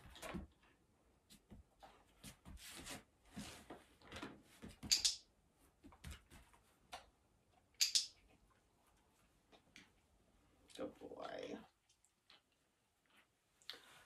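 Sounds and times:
training clicker click: 0:04.9 - 0:05.2, 0:07.8 - 0:08.1.

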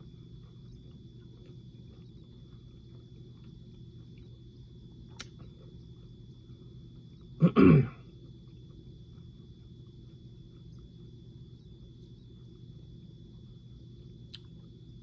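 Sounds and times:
faint steady hum: 0:00.0 - 0:15.0
man clearing his throat: 0:07.4 - 0:08.0.

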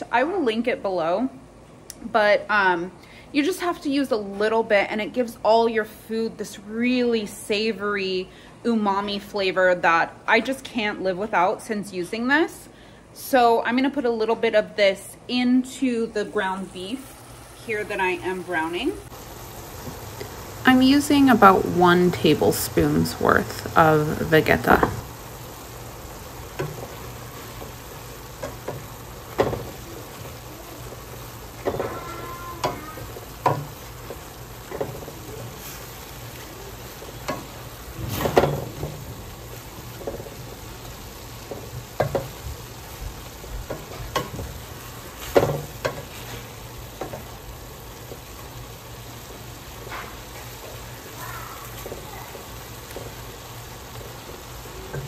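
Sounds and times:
meat and onions sizzling in a pan: 0:15.6 - 0:55.0
wooden spoon scraping a pan: 0:26.5 - 0:48.5, 0:49.2 - 0:55.0.

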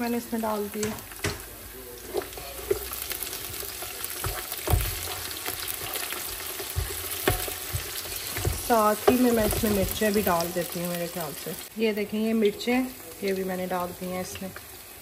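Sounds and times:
food sizzling in a pot: 0:00.0 - 0:15.0
spoon knocking against pot: 0:02.2 - 0:10.6.

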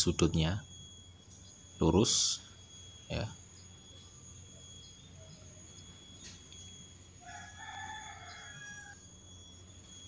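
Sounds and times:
faint steady hum: 0:00.0 - 0:10.0
rooster crowing: 0:07.0 - 0:10.0.

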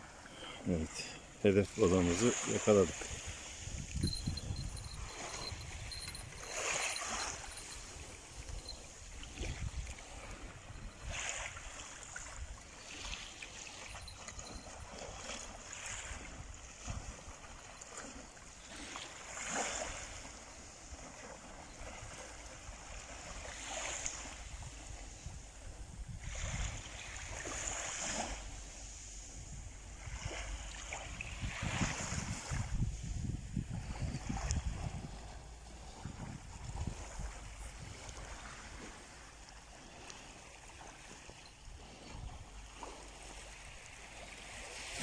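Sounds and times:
small waves washing up beach: 0:00.0 - 0:45.0
wind rumbling on microphone: 0:02.8 - 0:13.2, 0:21.5 - 0:39.2.

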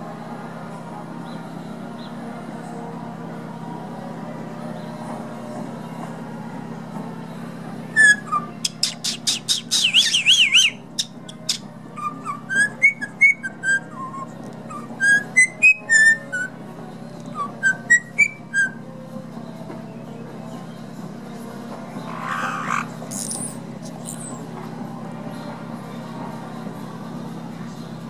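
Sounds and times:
parrot whistling and clicking: 0:08.0 - 0:16.2, 0:22.0 - 0:24.4.

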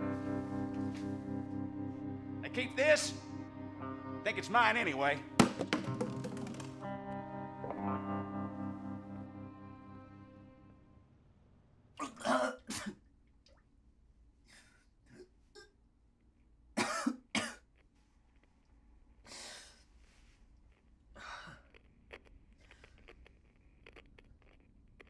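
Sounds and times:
person coughing: 0:12.0 - 0:13.0, 0:16.8 - 0:17.7
breathy exhalations: 0:19.2 - 0:20.3, 0:21.2 - 0:21.8.

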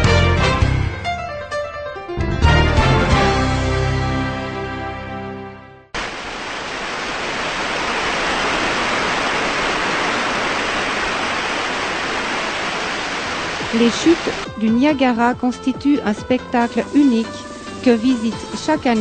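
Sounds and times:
intro music: 0:00.0 - 0:05.8
waterfall rushing: 0:06.0 - 0:14.5.

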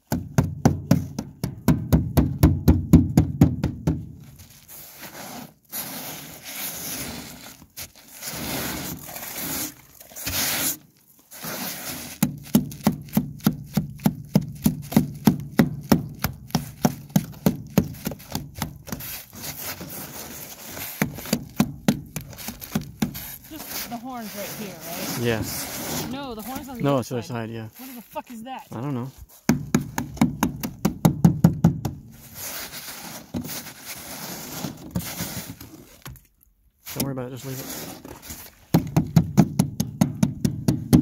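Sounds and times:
ice scraping: 0:04.3 - 0:29.4, 0:32.2 - 0:36.1, 0:36.8 - 0:38.8
tool chipping ice off metal: 0:08.4 - 0:26.7.

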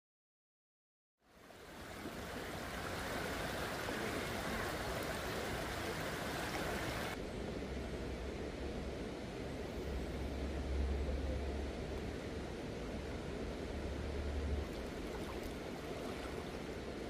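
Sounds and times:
river water rushing: 0:01.3 - 0:07.2, 0:09.5 - 0:17.0.

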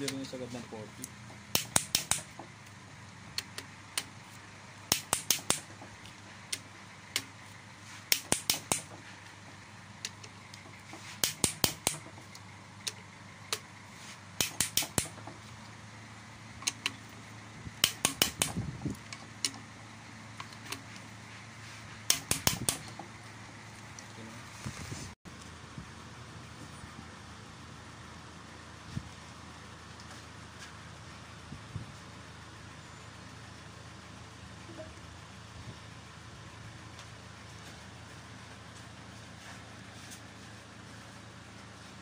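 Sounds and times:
steady low hum: 0:00.0 - 0:42.0
ratchet wrench clicking: 0:01.4 - 0:02.4, 0:04.9 - 0:05.8, 0:08.1 - 0:09.0, 0:11.2 - 0:13.7, 0:14.4 - 0:15.3, 0:17.8 - 0:18.7, 0:22.1 - 0:23.0.

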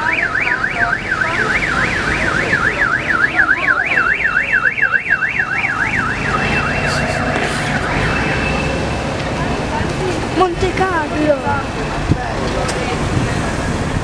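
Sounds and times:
electronic siren wailing: 0:00.0 - 0:08.9
steady high siren tone: 0:00.0 - 0:09.0
passing cars engine noise: 0:00.8 - 0:14.0.

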